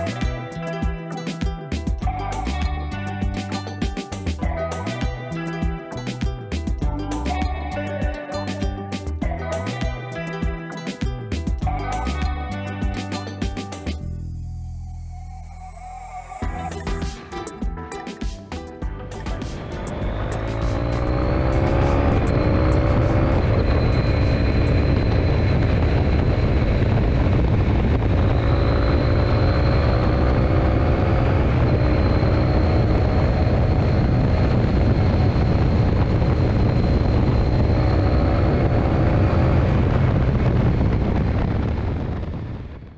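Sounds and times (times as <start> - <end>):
motorcycle engine running: 18.8 - 42.5.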